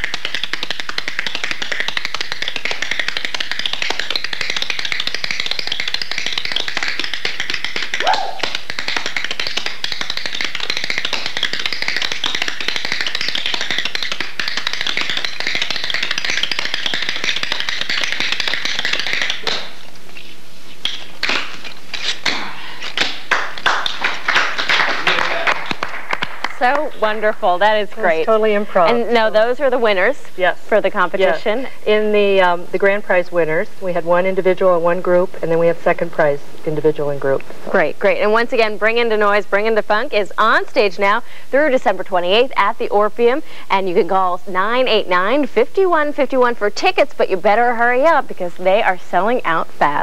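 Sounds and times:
tap shoes striking hard floor: 0:00.0 - 0:20.1.

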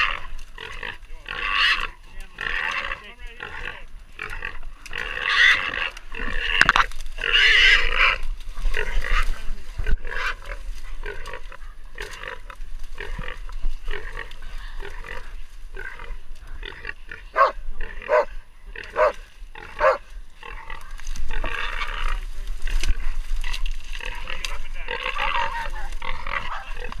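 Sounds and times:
hog squealing and grunting: 0:00.0 - 0:08.2, 0:23.0 - 0:27.0.

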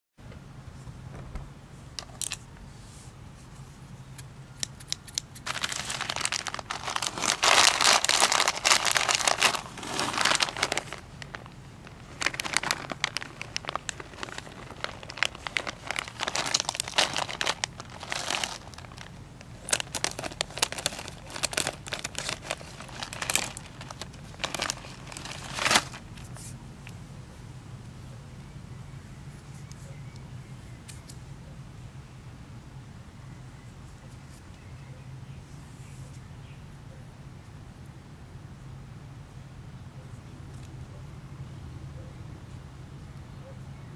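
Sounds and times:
plastic bags crinkling: 0:05.0 - 0:26.4.

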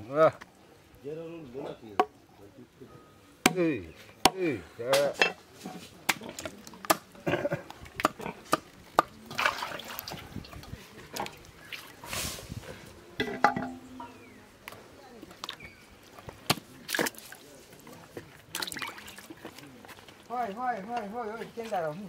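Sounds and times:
wet squelching: 0:07.7 - 0:12.1, 0:15.4 - 0:20.6.

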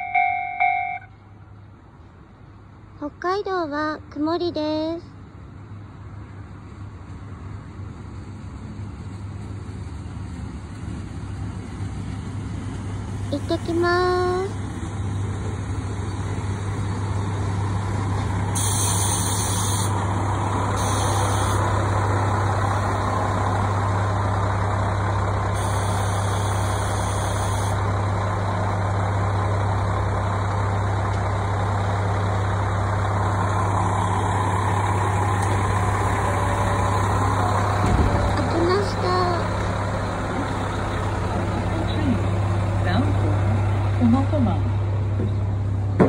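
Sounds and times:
diesel railcar engine humming: 0:00.0 - 0:46.0
short bursts of hiss: 0:18.6 - 0:20.0.

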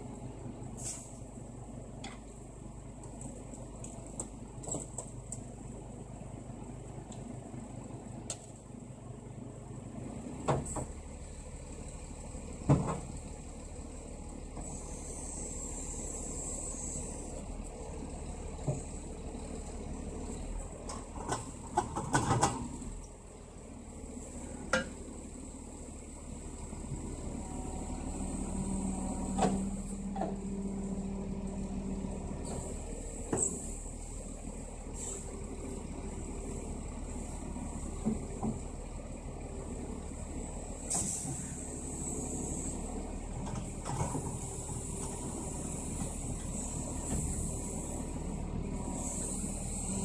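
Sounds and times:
diesel engine running: 0:00.0 - 0:50.0
hydraulic hiss: 0:40.9 - 0:42.8.

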